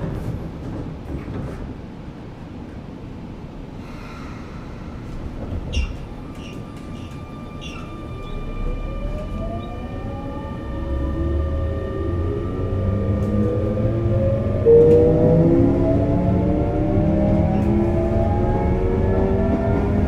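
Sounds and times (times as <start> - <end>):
train motor rumble: 0.0 - 20.0
electric train inverter whine: 2.4 - 20.0
train thud: 4.8 - 7.1.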